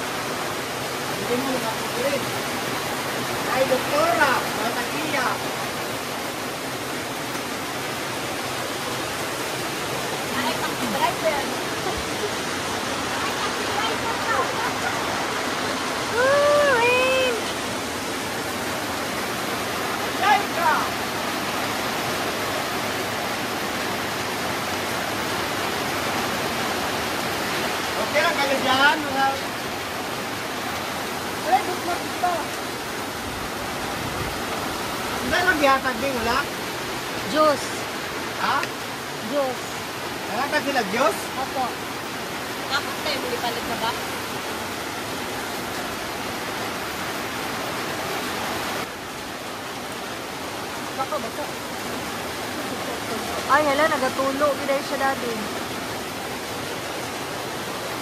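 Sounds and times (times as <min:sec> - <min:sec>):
rain on a metal roof: 0:00.0 - 0:58.0.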